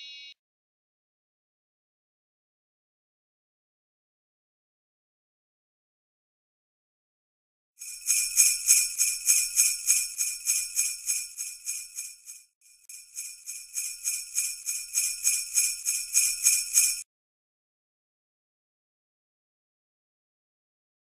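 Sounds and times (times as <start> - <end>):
sleigh bells shaken: 7.8 - 12.2, 12.9 - 17.0.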